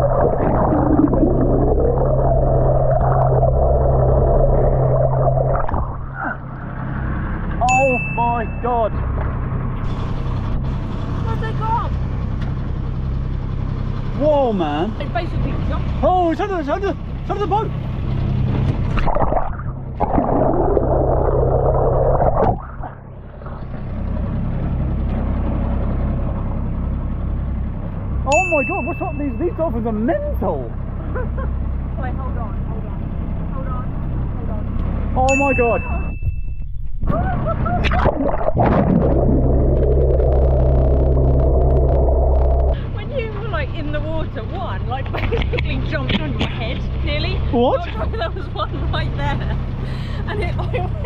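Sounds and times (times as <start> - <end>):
underwater rush of water: 0.0 - 7.8, 18.8 - 24.2, 37.8 - 42.8
wash of sea and air: 0.0 - 8.6, 18.3 - 26.0, 37.4 - 43.1
low drone: 0.0 - 14.2, 17.8 - 29.3, 36.7 - 45.0
low underwater hum: 0.0 - 51.0.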